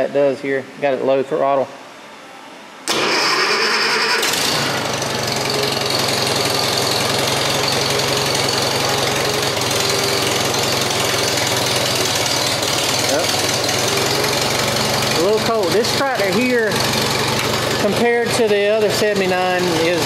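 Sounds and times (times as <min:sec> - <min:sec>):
engine starter cranking: 0:02.9 - 0:04.8
tractor engine running: 0:02.9 - 0:20.0.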